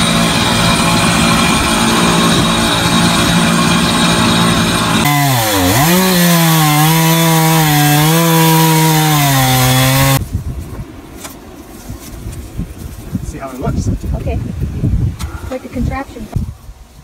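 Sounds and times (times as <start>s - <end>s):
chainsaw cutting log: 0.0s - 10.2s
chainsaw engine running: 0.0s - 10.2s.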